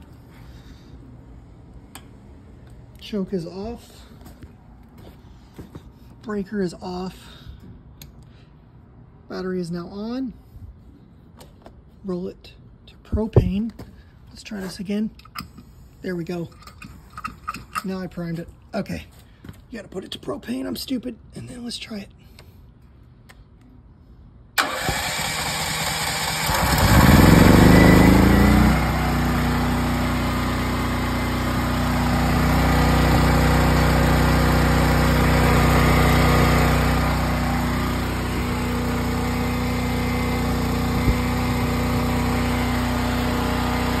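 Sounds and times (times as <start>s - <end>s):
electric starter cranking: 24.6s - 44.0s
generator engine running: 24.6s - 44.0s.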